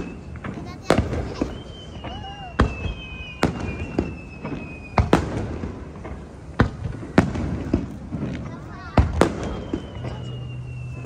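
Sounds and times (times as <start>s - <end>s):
thin high whistle: 0.0s - 0.4s, 1.3s - 5.1s, 9.3s - 11.0s
firework shells bursting: 0.0s - 11.0s.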